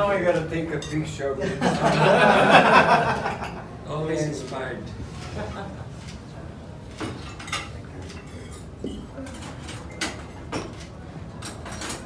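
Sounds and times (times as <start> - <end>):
cutlery and glassware clinking: 0.4 - 1.1, 6.9 - 12.0.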